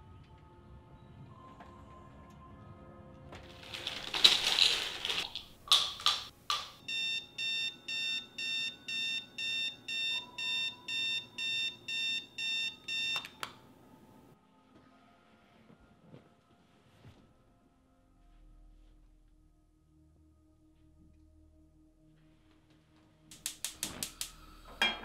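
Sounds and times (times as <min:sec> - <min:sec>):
digital alarm clock beeping: 0:06.8 - 0:13.4.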